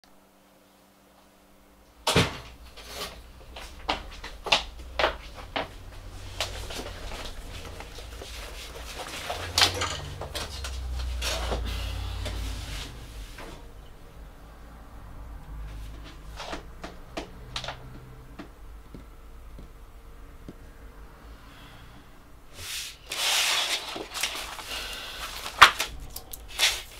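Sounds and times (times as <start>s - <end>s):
rustling: 2.6s - 13.6s, 22.5s - 26.9s.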